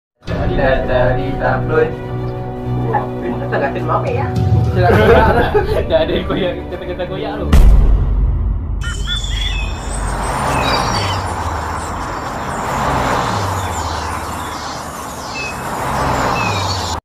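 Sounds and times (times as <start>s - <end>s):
road traffic rumble: 0.4s - 7.2s, 8.8s - 17.0s
vehicle low drone: 8.4s - 17.0s
birds chirping: 8.8s - 17.0s.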